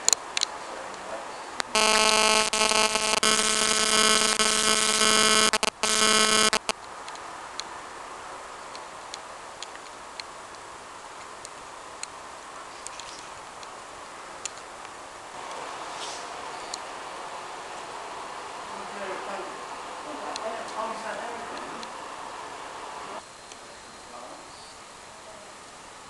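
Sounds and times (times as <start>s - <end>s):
loud buzzing tone: 1.6s - 6.8s
small ticks: 1.6s - 7.7s.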